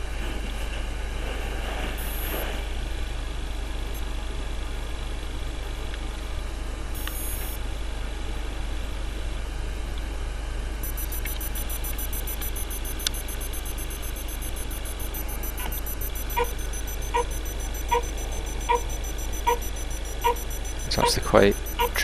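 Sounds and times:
buzzer short beeps: 2.0 - 2.4, 7.0 - 7.6, 10.8 - 22.0.

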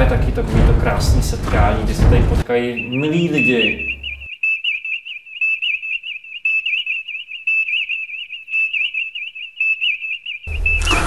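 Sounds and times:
high whistled tone with pitch dips: 2.5 - 11.0.

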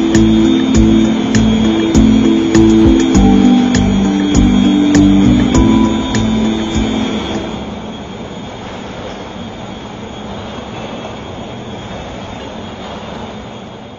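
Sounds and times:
guitar tune: 0.0 - 7.6
carousel gearing rumbling: 0.0 - 9.0.

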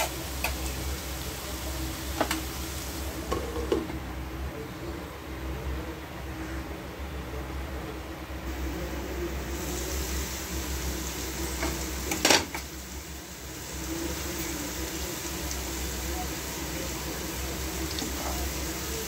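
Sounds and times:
faint hiss: 0.0 - 3.4, 8.4 - 19.0.

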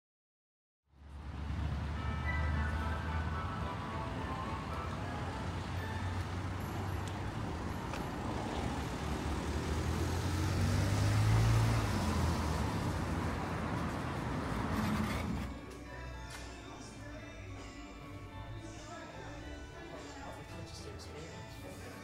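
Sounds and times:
rumble of passing vehicles: 0.9 - 16.2
vehicle passing close: 1.0 - 15.6.

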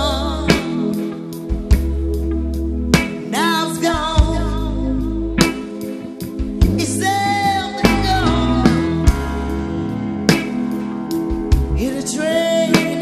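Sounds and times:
person singing: 0.0 - 1.5, 3.2 - 9.6, 11.7 - 13.0
guitar: 0.0 - 13.0
steady drum beat: 5.4 - 7.2, 7.8 - 12.1.

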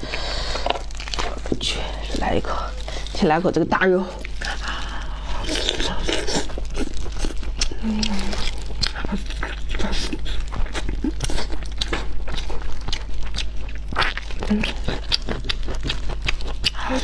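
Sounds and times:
wet chewing clicks and smacks: 5.6 - 16.8.

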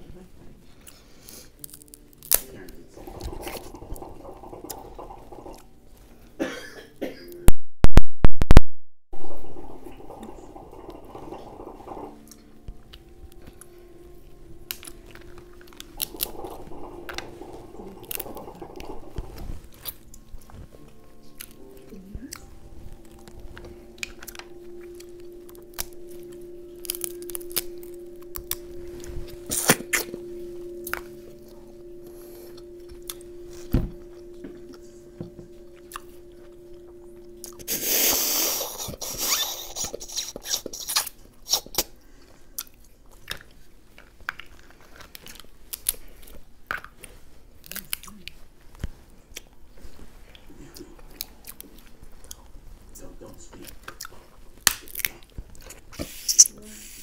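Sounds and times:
close-up chewing: 0.6 - 6.4, 9.6 - 57.0
crab shells cracking: 1.6 - 2.7, 53.8 - 55.8
steady low hum: 9.2 - 39.2.

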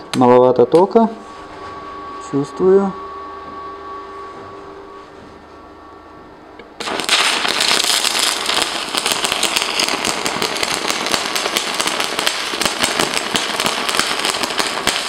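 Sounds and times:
welding arc crackling: 6.8 - 15.0.

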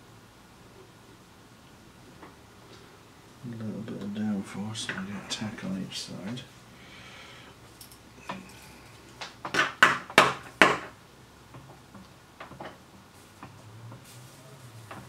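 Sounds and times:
loud knocks of tools: 9.2 - 11.8.

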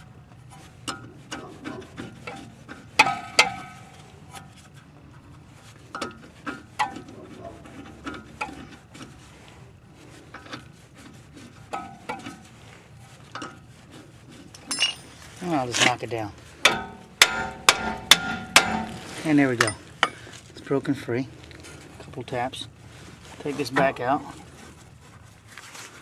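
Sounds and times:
wrench clinking on metal nut: 14.6 - 15.2.

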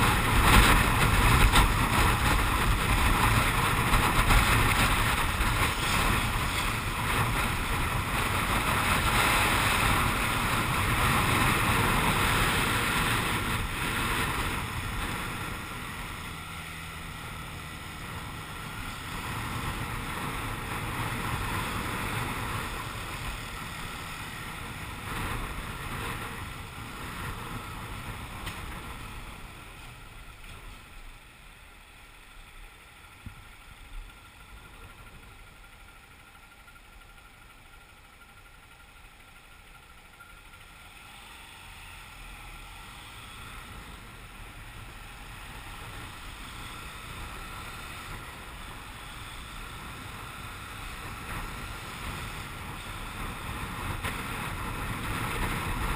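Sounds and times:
wind rushing over microphone: 0.0 - 29.8, 45.4 - 55.9
motorcycle engine: 0.0 - 55.9
road noise: 0.0 - 55.9.

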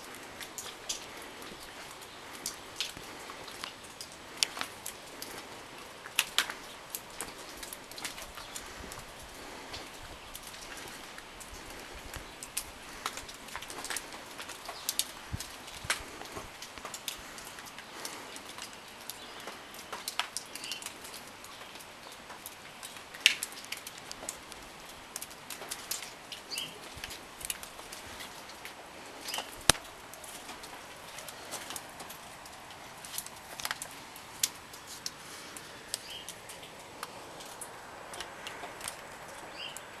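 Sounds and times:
irregular ticks and taps: 9.7 - 35.2.

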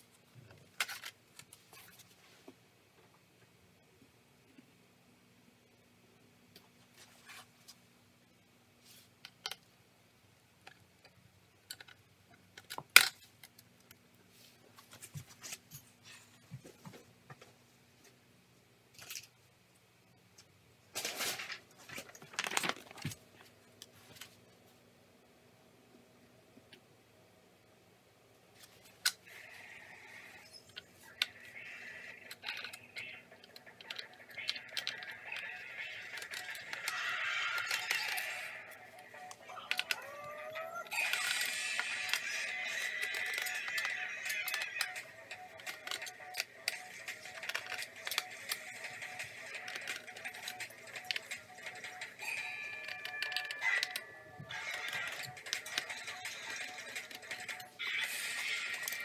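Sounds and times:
small clicks and scrapes: 10.6 - 14.0, 30.1 - 40.1, 40.8 - 59.0.

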